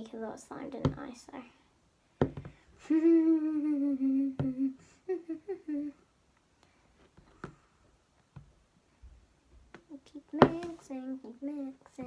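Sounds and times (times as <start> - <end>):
girl humming: 2.8 - 6.1.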